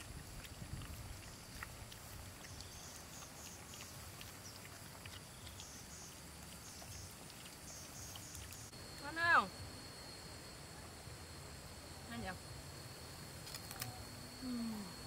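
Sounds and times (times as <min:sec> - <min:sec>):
puppies chewing and licking: 0:00.0 - 0:08.8.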